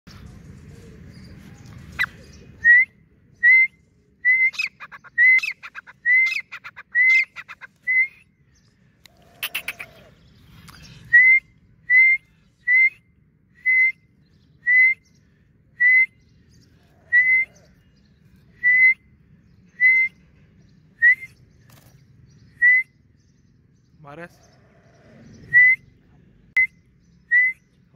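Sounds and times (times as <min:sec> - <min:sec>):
bird whistling calls: 0:02.0 - 0:08.3, 0:09.4 - 0:10.1, 0:11.0 - 0:15.2, 0:17.0 - 0:17.8, 0:18.5 - 0:20.3, 0:22.4 - 0:23.2, 0:25.3 - 0:26.0, 0:26.6 - 0:27.9.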